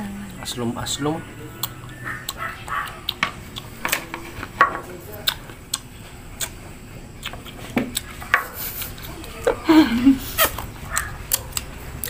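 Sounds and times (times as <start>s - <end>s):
crunchy chewing: 0.4s - 9.1s, 10.2s - 12.0s.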